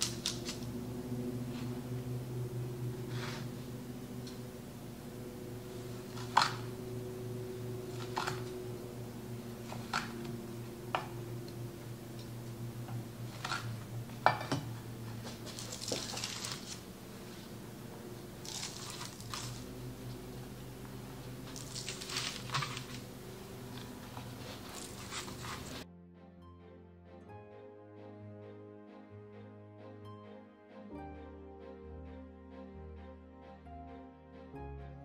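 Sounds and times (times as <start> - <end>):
steady low hum: 0.0 - 25.8
parchment rustles: 15.0 - 25.8.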